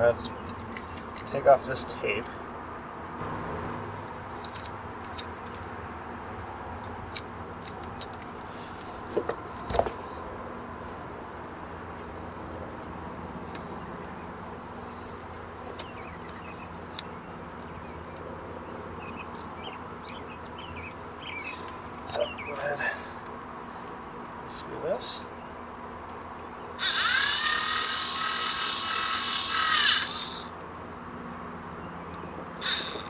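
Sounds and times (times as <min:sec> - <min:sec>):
steady background hum: 0:00.0 - 0:33.0
tape peeling off wires: 0:04.1 - 0:05.7, 0:07.1 - 0:09.2.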